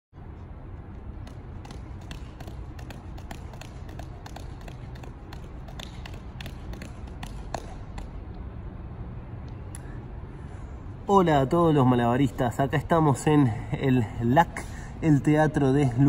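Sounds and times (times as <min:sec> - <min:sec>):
juggling balls smacking into hands: 0:01.1 - 0:08.4.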